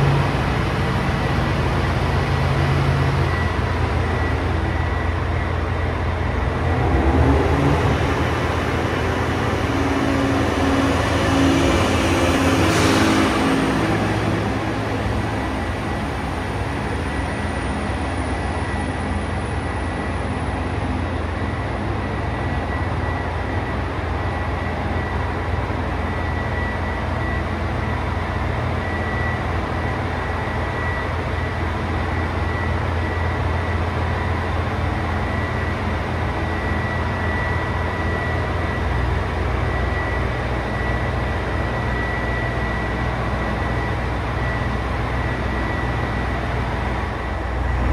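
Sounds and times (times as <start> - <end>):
diesel railcar engine running: 0.0 - 47.9
steady low hum: 45.6 - 47.9
rising electric whine: 46.8 - 47.9.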